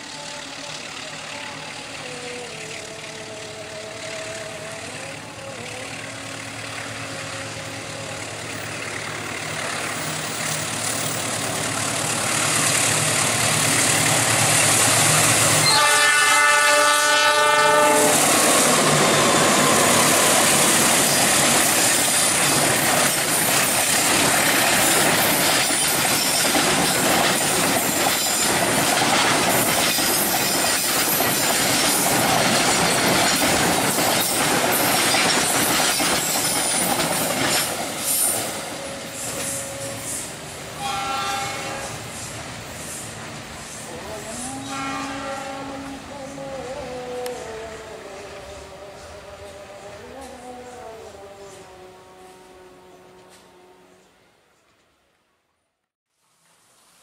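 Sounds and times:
train wheels rumbling: 0.0s - 51.8s
diesel locomotive engine: 0.0s - 55.0s
train horn blast: 15.3s - 20.4s, 38.1s - 42.3s, 44.2s - 47.5s, 51.3s - 54.4s
wheels clacking over rail joints: 18.1s - 40.1s.

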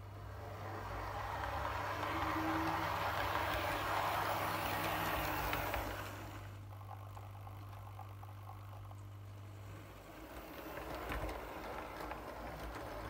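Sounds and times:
model train running on track: 0.0s - 13.0s.

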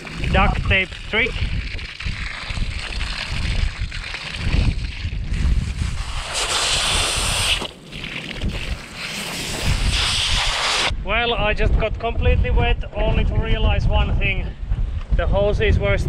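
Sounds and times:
water hissing from hose: 0.0s - 10.9s
wind buffeting microphone: 0.0s - 16.0s.

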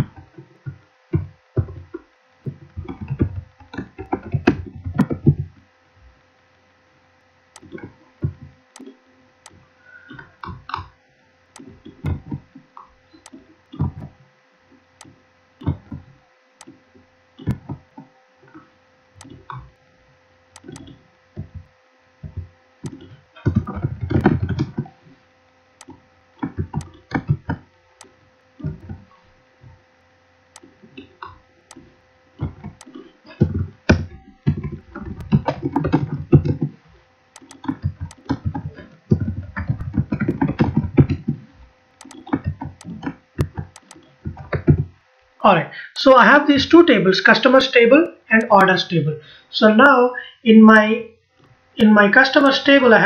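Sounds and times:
keyboard typing: 0.0s - 5.6s, 7.6s - 10.9s, 11.6s - 14.2s, 15.0s - 16.8s, 17.4s - 18.6s, 19.2s - 19.8s, 20.5s - 24.9s, 25.8s - 29.2s, 30.5s - 45.0s
faint electrical whine: 0.0s - 53.0s
mouse clicks: 7.6s - 7.8s, 37.4s - 41.3s, 42.0s - 44.7s.

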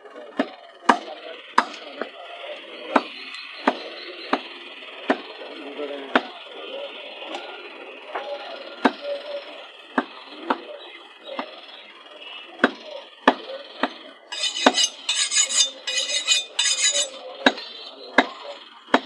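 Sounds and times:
ringing metallic scraping: 14.3s - 17.3s.

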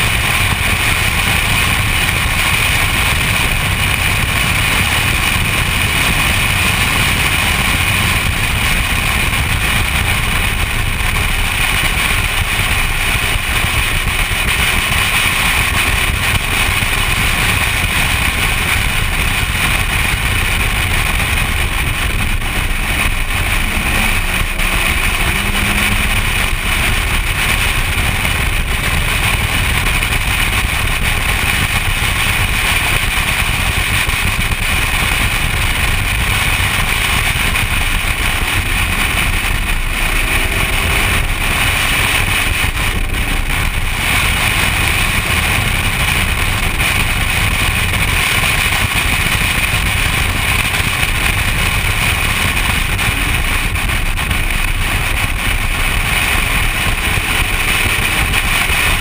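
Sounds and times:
car engine and tyre noise: 0.0s - 59.0s
wind rushing: 16.4s - 31.7s.

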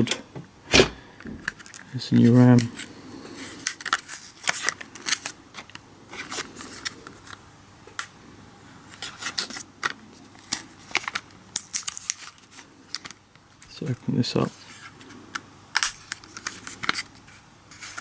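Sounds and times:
plastic package clicks and crackles: 1.4s - 2.7s, 3.6s - 7.4s, 9.0s - 13.8s.

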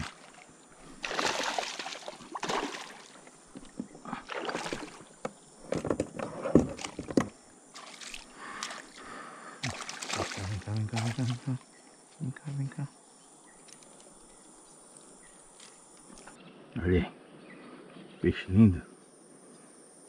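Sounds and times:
water splashing beside a kayak: 0.0s - 11.5s.

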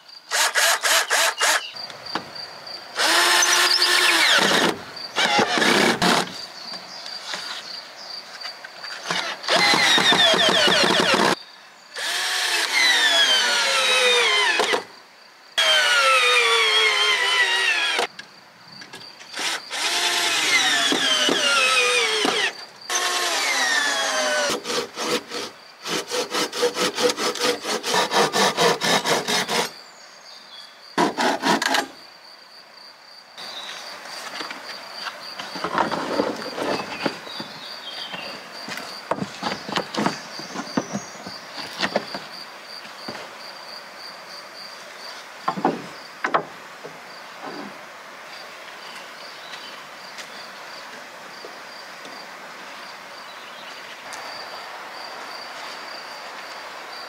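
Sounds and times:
power drill working wood: 0.3s - 1.6s, 3.0s - 6.3s, 9.0s - 11.4s, 12.0s - 14.8s, 15.6s - 18.1s, 19.3s - 29.7s.

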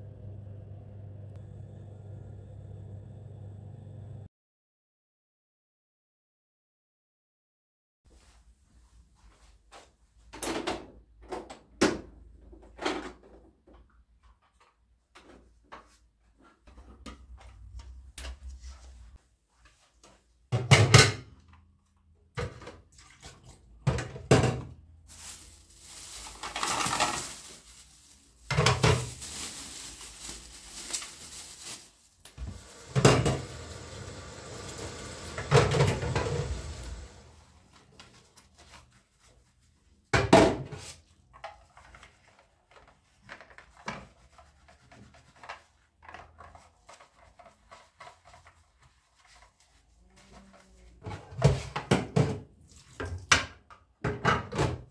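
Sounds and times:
objects knocking and clattering: 10.3s - 16.0s, 20.5s - 21.6s, 22.3s - 24.8s, 28.5s - 29.3s, 32.4s - 33.7s, 51.0s - 54.9s
rustling: 25.0s - 32.8s.

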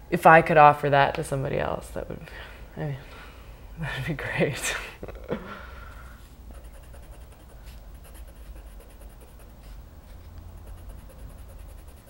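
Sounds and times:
pen scratching on paper: 6.5s - 9.8s, 10.6s - 12.0s.

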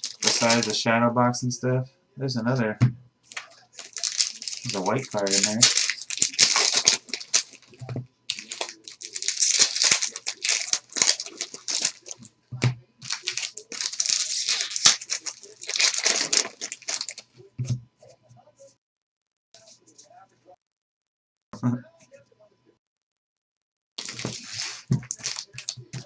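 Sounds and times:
wrappers crinkling and tearing: 0.0s - 0.8s, 3.3s - 12.3s, 13.0s - 17.3s, 24.0s - 26.0s.

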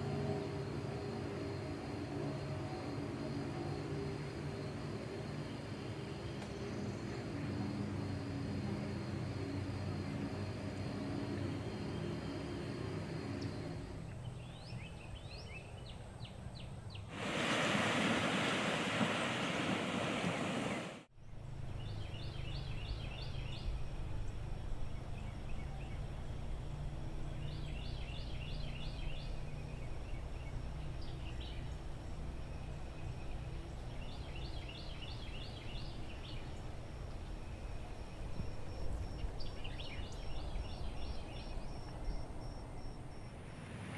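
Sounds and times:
low outdoor rumble: 0.0s - 43.9s
loud hiss: 17.1s - 21.1s.

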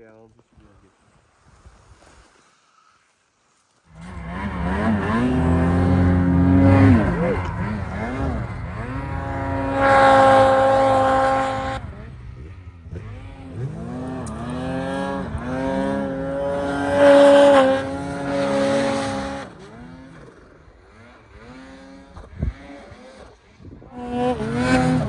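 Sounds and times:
snowmobile engine revving: 3.9s - 25.0s.

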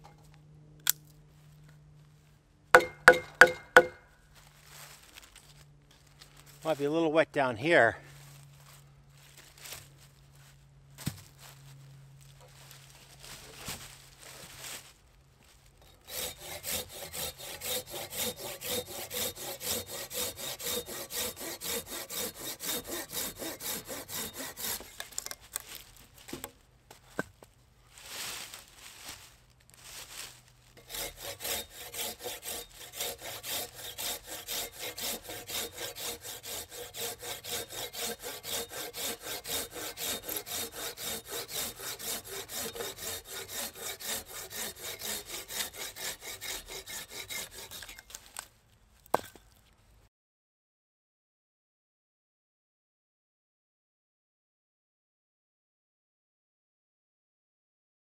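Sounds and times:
hand saw cutting branch: 2.8s - 4.0s, 15.8s - 26.5s, 30.8s - 48.4s.

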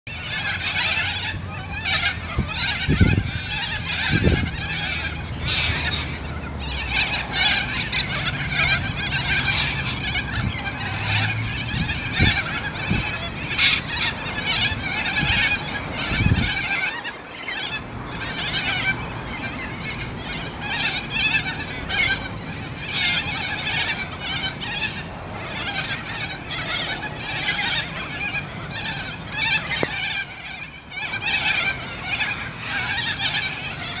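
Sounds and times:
flock of birds screeching: 0.1s - 34.0s.

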